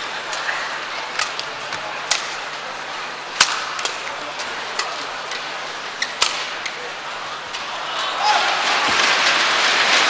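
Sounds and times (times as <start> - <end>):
steady background hiss: 0.0 - 10.0
racket striking shuttlecock: 6.2 - 6.5.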